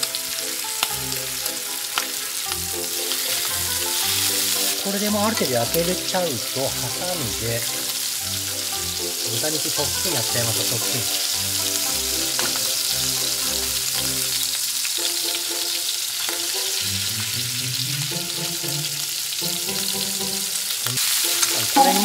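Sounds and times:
meat sizzling in a pan: 0.0 - 22.0
chopsticks stirring: 1.9 - 14.4, 15.0 - 17.4.

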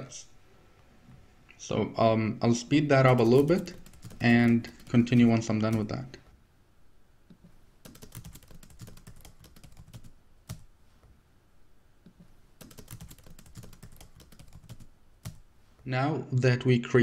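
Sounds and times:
keyboard typing: 2.9 - 6.1, 7.3 - 10.7, 12.1 - 15.4.

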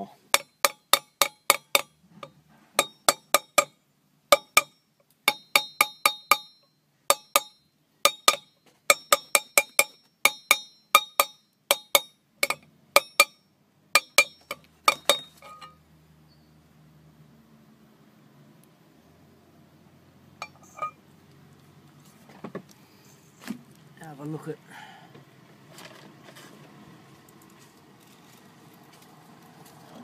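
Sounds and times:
mallet tapping metal tool: 0.3 - 13.4, 14.0 - 15.8.

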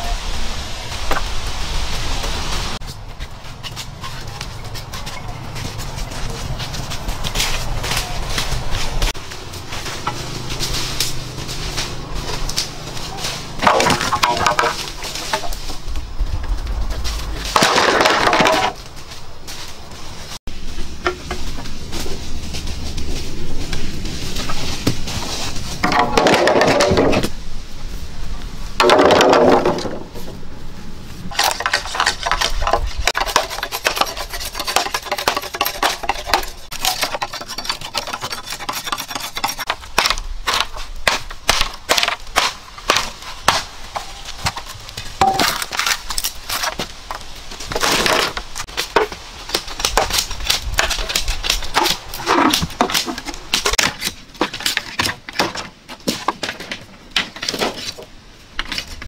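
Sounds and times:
bamboo poles clattering: 2.2 - 27.4, 28.8 - 30.4, 31.2 - 59.0
machete splitting bamboo: 10.0 - 15.6, 31.3 - 58.0.

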